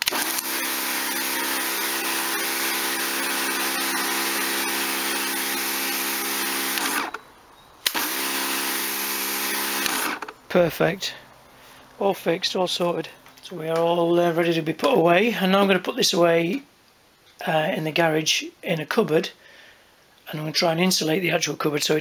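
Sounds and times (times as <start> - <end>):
motor starting with a click: 0.0 - 2.4, 6.4 - 7.2, 7.8 - 8.3, 9.5 - 10.4
pressure washer motor humming: 0.0 - 7.2, 7.8 - 10.4.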